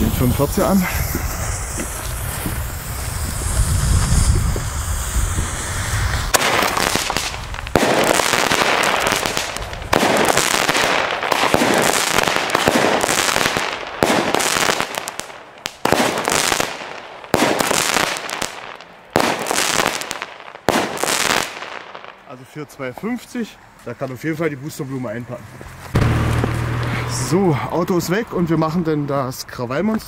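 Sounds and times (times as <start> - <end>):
firework shots: 0.0 - 22.3, 25.9 - 27.0
crackling firework stars: 0.0 - 24.4, 25.6 - 27.2.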